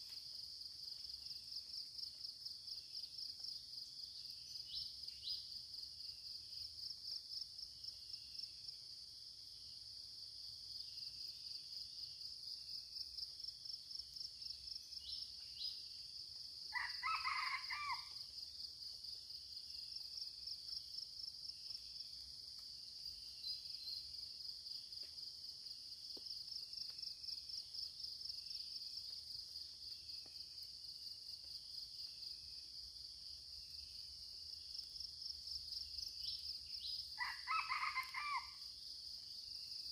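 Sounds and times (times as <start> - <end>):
rooster crowing: 16.7 - 18.1, 37.2 - 38.6.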